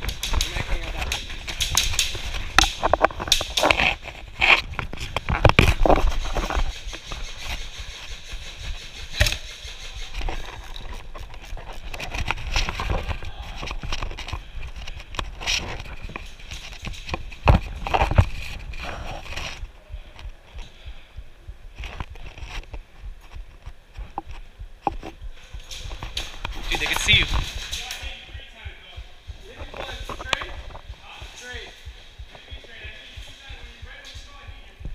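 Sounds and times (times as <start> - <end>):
rifle and gear clicks and knocks: 0.0 - 6.6, 29.5 - 31.5.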